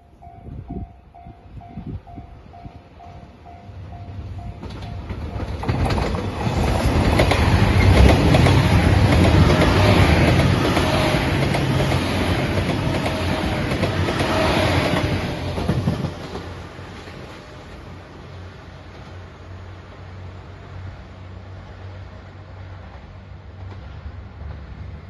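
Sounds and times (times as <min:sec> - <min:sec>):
level crossing alarm ringing: 0:00.0 - 0:05.7
train passing at speed: 0:00.0 - 0:25.0
wheels clattering over rail joints: 0:04.6 - 0:16.6.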